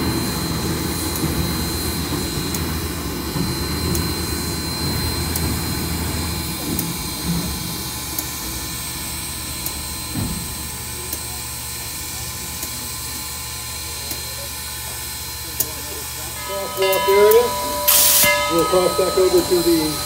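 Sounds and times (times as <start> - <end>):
high whine: 16.4 - 20.0.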